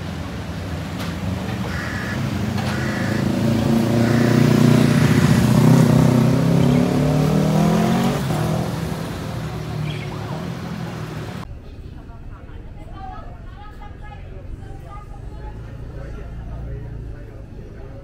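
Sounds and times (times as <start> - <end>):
street traffic passing: 0.0 - 18.0
vehicle engine accelerating: 0.8 - 11.4.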